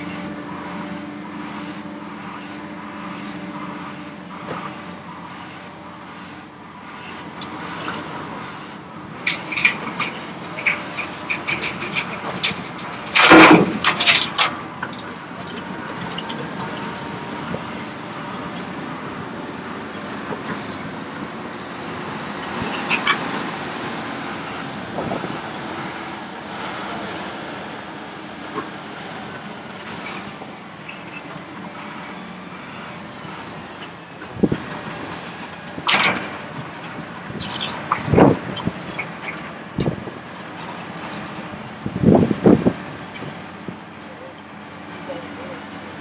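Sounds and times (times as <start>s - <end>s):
excavator engine and hydraulics: 0.0s - 46.0s
earth and rock clunking on metal: 10.7s - 14.6s.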